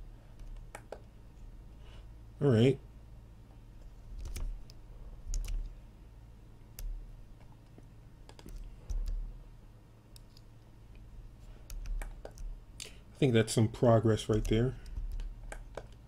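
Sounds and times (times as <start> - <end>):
mouse and keyboard clicks: 0.4 - 1.1, 4.2 - 5.7, 8.2 - 9.2, 11.6 - 12.5, 14.3 - 16.0.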